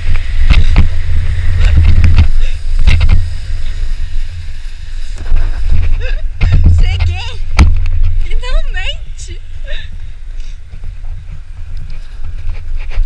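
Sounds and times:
snow tube rumbling over snow: 0.0s - 13.0s
wind rushing past microphone: 0.0s - 13.0s
knocks and bumps: 5.2s - 8.2s.

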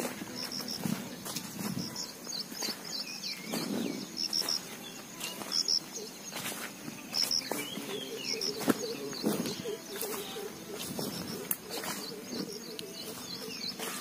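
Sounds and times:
birds chirping and whistling: 0.0s - 14.0s
footsteps on grassy soil: 0.0s - 14.0s
bird cooing: 7.5s - 14.0s.

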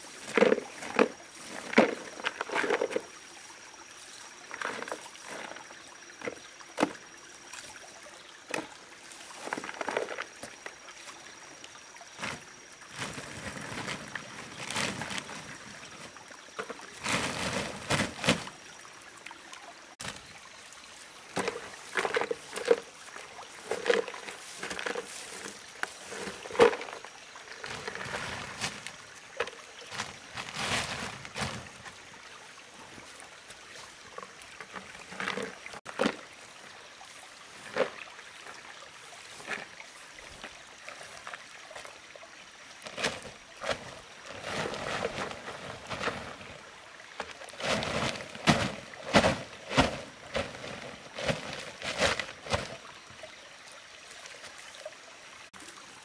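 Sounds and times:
water splashing and sloshing: 0.0s - 56.0s.

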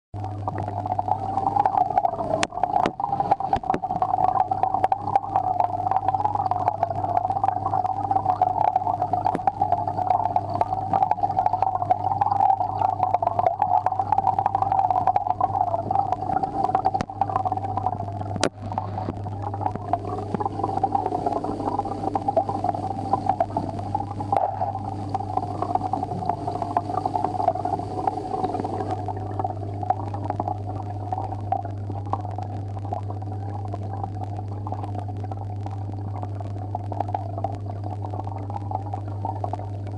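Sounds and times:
air pump humming underwater: 0.2s - 39.9s
bubbling underwater: 0.2s - 39.9s.

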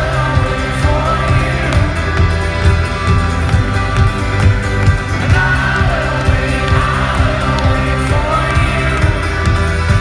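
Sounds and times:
person singing: 0.0s - 2.7s, 5.1s - 10.0s
bass: 0.0s - 10.0s
folk-rock band playing live: 0.0s - 10.0s.

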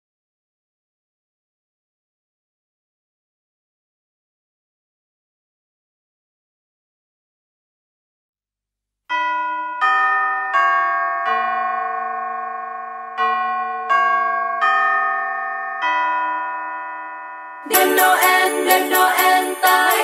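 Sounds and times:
bell chime tune: 9.1s - 20.0s.

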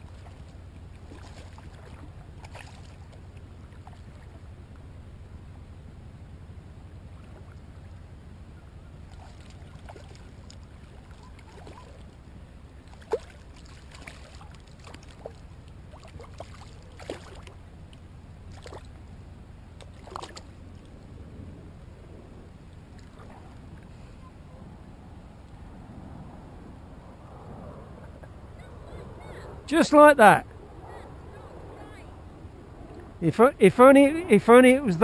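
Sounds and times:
fish splashing at water surface: 0.0s - 4.3s, 9.1s - 12.2s, 12.8s - 17.6s, 18.5s - 19.0s, 19.8s - 20.6s
wind rumble on microphone: 6.0s - 29.8s.

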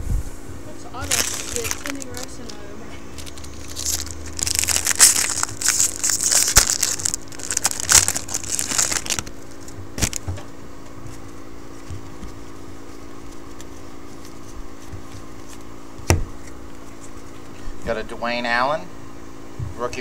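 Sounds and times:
foil wrapper crinkling: 1.0s - 10.5s, 11.1s - 15.8s.

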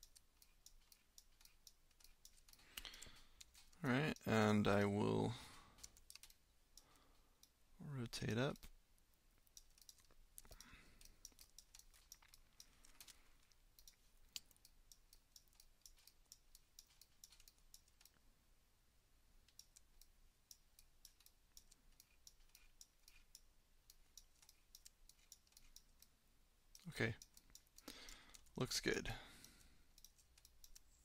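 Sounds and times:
mouse and keyboard clicking: 0.0s - 4.3s, 5.8s - 7.6s, 9.4s - 18.2s, 19.4s - 26.1s, 29.4s - 31.0s.

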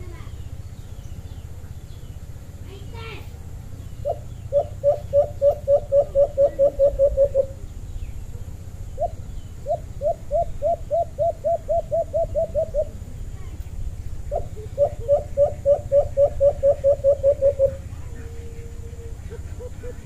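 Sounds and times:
dove cooing: 3.4s - 20.0s.

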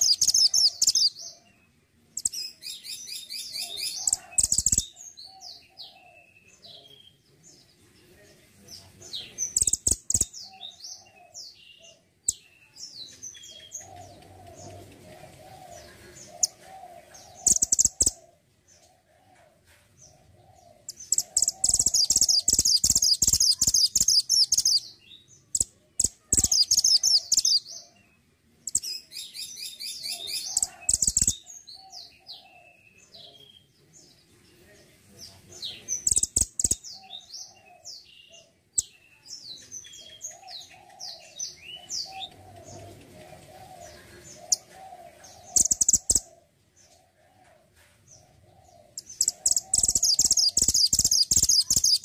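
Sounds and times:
bird chirping trills: 0.0s - 7.2s, 9.2s - 19.0s, 20.5s - 33.6s, 35.7s - 47.0s, 48.3s - 52.0s
low bird warbling: 48.6s - 52.0s.

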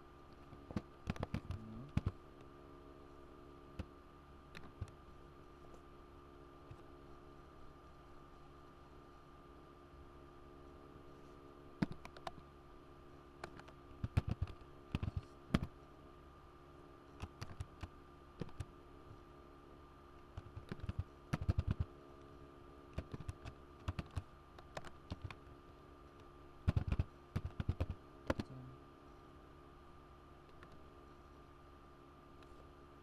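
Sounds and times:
faint steady hum: 0.0s - 33.0s
typing on computer keyboard: 1.0s - 2.2s, 13.4s - 15.7s, 17.2s - 18.7s, 20.4s - 21.9s, 23.0s - 25.4s, 26.7s - 28.4s.

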